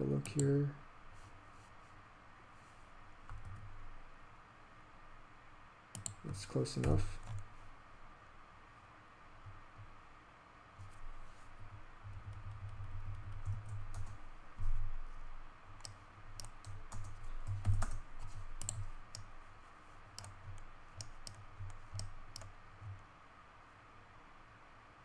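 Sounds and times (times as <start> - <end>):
keyboard and mouse clicks: 3.3 - 3.7, 5.9 - 7.5, 12.1 - 14.8, 15.8 - 19.3, 20.2 - 23.0.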